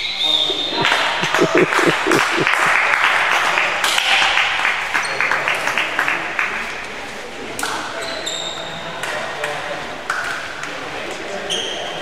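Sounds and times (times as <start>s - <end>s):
people clapping: 0.5s - 6.9s.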